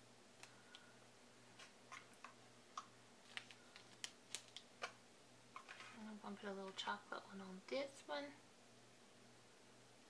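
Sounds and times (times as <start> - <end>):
faint steady hum: 0.0 - 10.0
fingers clicking on plastic packaging: 1.6 - 5.0.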